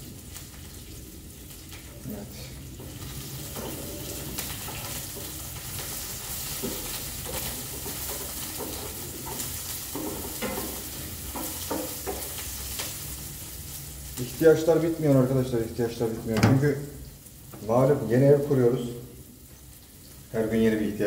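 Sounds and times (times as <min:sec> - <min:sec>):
vegetables sizzling in oil: 0:00.0 - 0:21.0.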